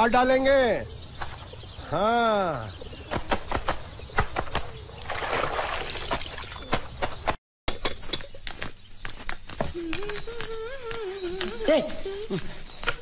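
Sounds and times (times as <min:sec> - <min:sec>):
soapy water sloshing: 0:05.0 - 0:06.6.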